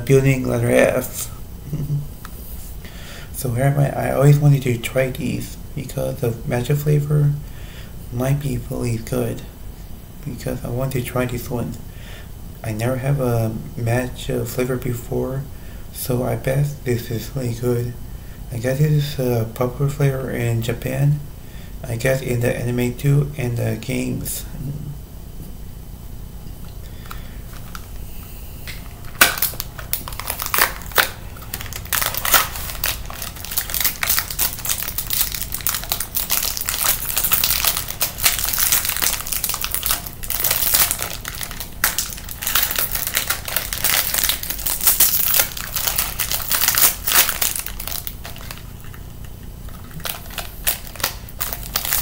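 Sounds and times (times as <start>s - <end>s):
foil wrapper crinkling: 28.7s - 49.1s, 49.7s - 52.0s.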